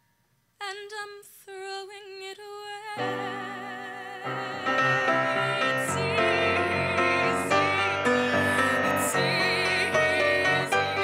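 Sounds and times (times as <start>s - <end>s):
young woman singing show tune: 0.6s - 11.0s
sustained musical accompaniment: 3.0s - 11.0s.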